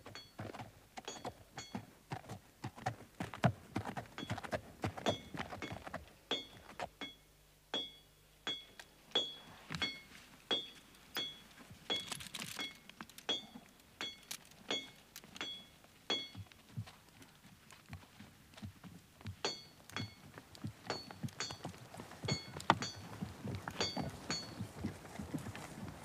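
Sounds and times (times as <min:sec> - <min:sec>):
harness bell clinking: 0:00.1 - 0:00.4, 0:01.0 - 0:01.9, 0:05.0 - 0:16.4, 0:19.4 - 0:25.8
hoof thuds: 0:09.2 - 0:26.0.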